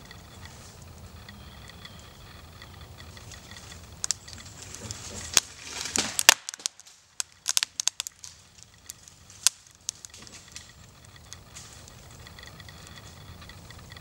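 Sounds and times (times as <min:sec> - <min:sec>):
wood cracking and splintering: 0:03.0 - 0:14.0.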